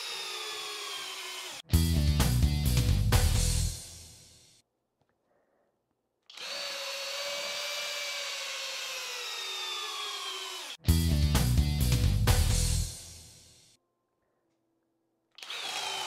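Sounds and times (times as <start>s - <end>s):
hammer drill driving screw into wood: 0.0s - 1.6s, 6.3s - 10.8s, 15.4s - 16.0s.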